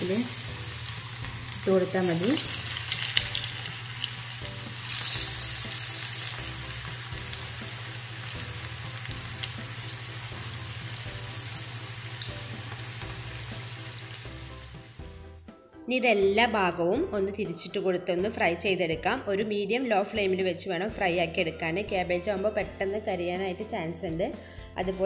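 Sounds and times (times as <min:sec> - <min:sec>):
batter sizzling in hot oil: 0:00.0 - 0:15.2.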